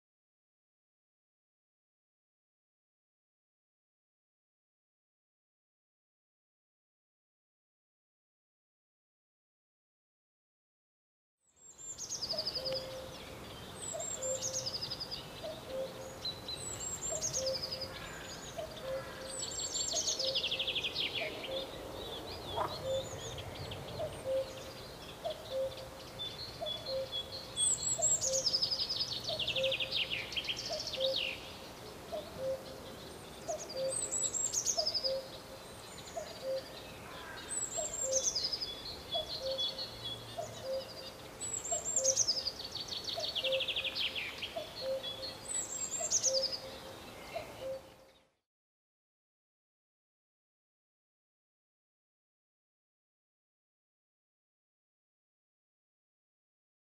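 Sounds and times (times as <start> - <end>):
songbirds trilling: 11.6 - 48.4
cuckoo calling: 12.0 - 48.1.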